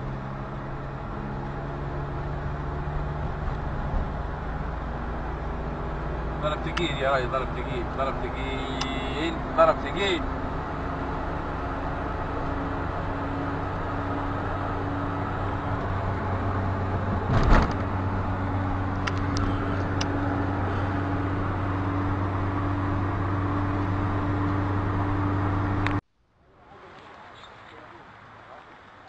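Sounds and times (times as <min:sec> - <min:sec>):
car engine and road noise: 0:00.0 - 0:29.0
loud thump: 0:17.1 - 0:17.9.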